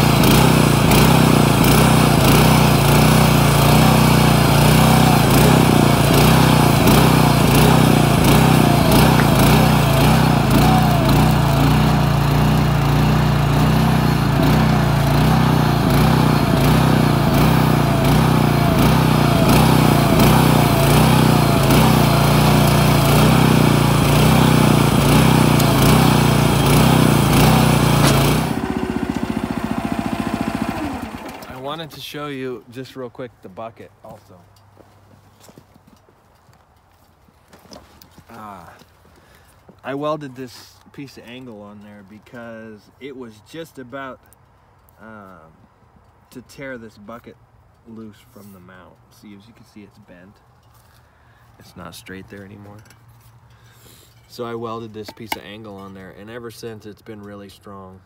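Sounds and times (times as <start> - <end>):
small engine running: 0.0 - 32.0.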